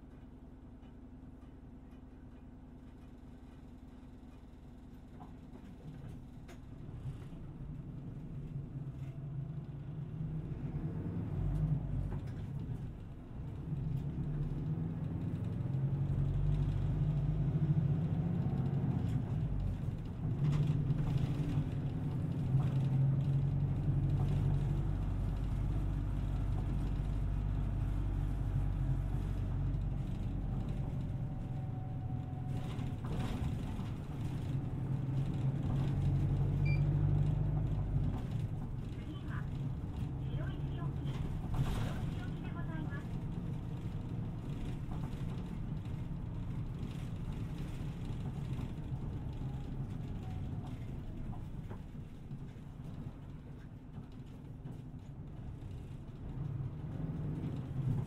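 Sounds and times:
bus engine: 0:00.0 - 0:58.0
road rumble: 0:00.0 - 0:58.0.

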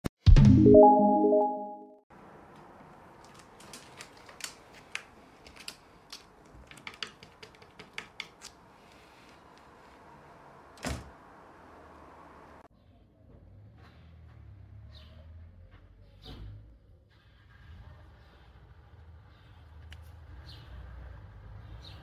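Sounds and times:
cat claws clicking on wood floor: 0:03.2 - 0:08.6.

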